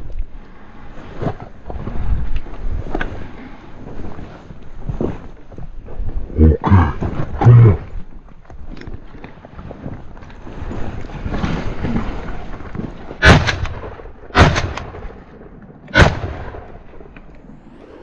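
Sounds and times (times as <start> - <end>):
shotgun shots: 13.2 - 15.2, 15.9 - 16.8.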